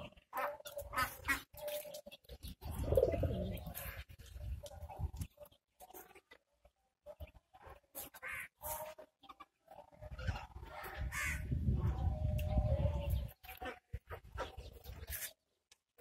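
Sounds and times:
pigeons cooing: 0.0s - 5.3s.

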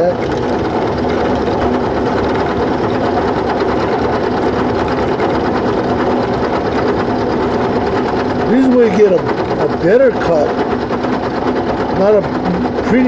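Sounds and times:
end mill grinding metal: 0.0s - 13.0s
motor hum: 0.0s - 13.0s.

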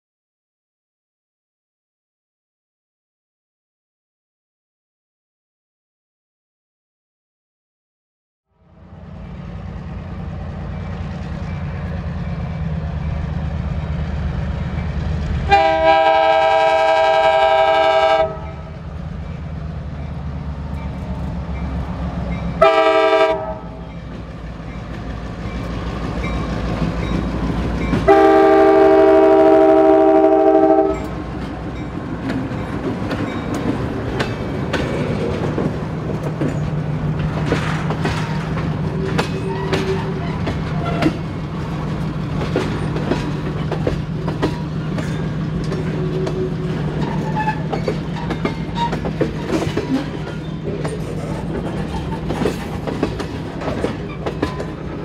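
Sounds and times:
diesel locomotive engine running: 8.7s - 55.0s
locomotive air horn blasts: 15.5s - 18.8s, 22.6s - 23.8s, 28.1s - 31.1s
train wheels clicking over rail joints: 23.8s - 28.2s, 31.0s - 55.0s.

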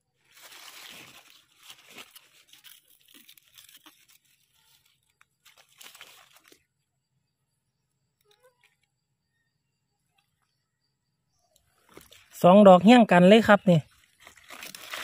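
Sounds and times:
leaf litter and soil crunching: 0.0s - 6.9s, 11.7s - 15.0s.

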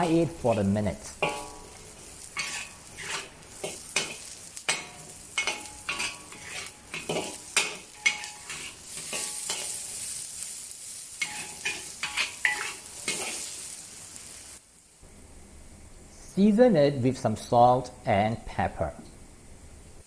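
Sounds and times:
spatula scraping a metal wok: 0.0s - 10.2s, 11.2s - 13.7s
sizzling in hot oil: 0.0s - 15.0s.

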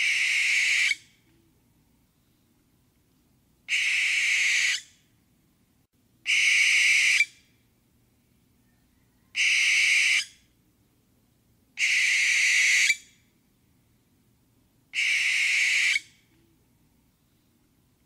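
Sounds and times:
barn owl screeching: 0.0s - 1.0s, 3.7s - 4.9s, 6.3s - 7.3s, 9.2s - 10.4s, 11.8s - 13.1s, 15.0s - 16.1s.

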